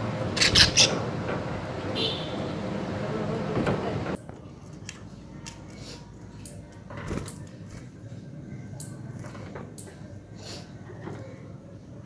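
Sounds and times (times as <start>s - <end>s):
budgerigars chirping: 0.3s - 1.0s.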